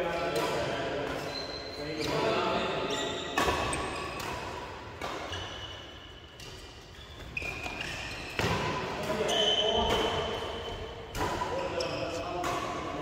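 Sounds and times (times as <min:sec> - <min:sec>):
rackets hitting shuttlecock: 0:00.1 - 0:13.0
shoes squeaking on court: 0:01.2 - 0:04.3, 0:05.1 - 0:10.9.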